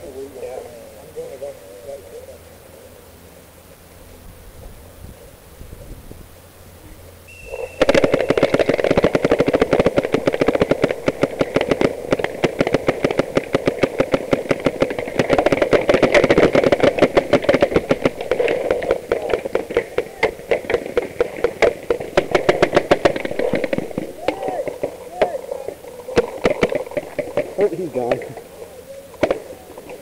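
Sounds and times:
paintball markers firing rapidly: 7.3 - 28.5, 29.2 - 30.0.

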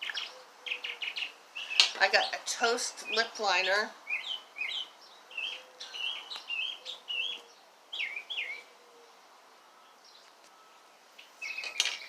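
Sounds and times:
songbird whistling: 0.0 - 2.0, 4.0 - 8.8, 9.6 - 12.0.

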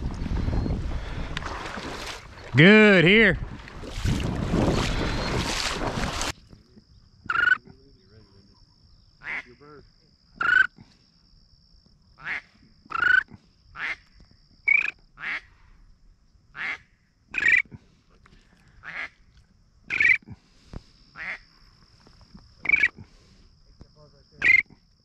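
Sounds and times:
duck quacking: 9.2 - 9.6, 18.8 - 19.2, 21.2 - 21.4.

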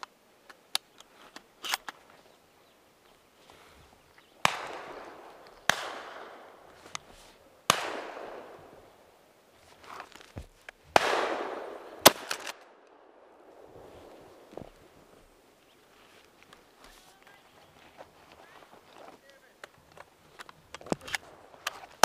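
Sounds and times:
shotgun shots echoing: 4.4 - 6.7, 7.6 - 9.1, 11.0 - 14.5.

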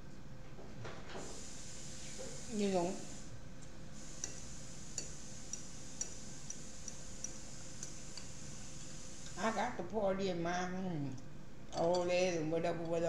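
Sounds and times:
steady low hiss: 0.0 - 13.0
fork clicks while eating: 5.0 - 8.3.

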